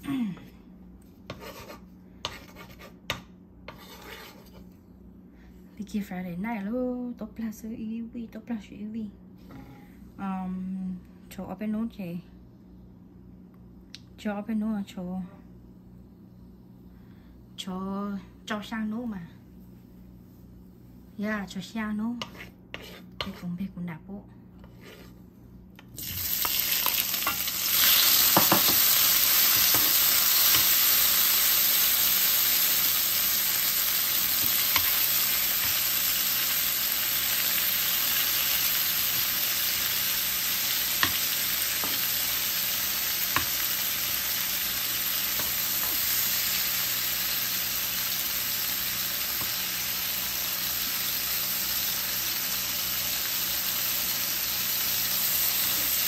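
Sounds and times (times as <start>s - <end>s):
tomatoes sizzling in hot oil: 25.9s - 56.0s
spatula tapping: 28.4s - 28.8s.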